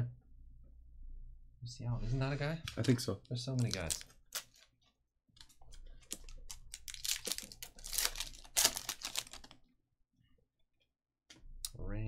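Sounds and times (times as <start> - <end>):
foil wrapper tearing and crinkling: 3.6 - 4.7, 6.0 - 9.5.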